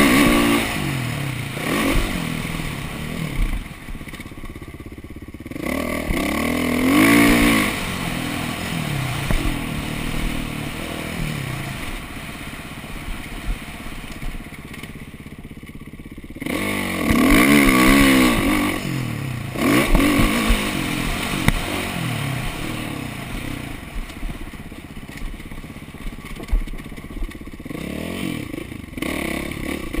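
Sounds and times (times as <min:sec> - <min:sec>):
motocross engine revving: 0:00.0 - 0:04.6, 0:05.3 - 0:30.0
sharp knocks from bike: 0:09.2 - 0:10.4.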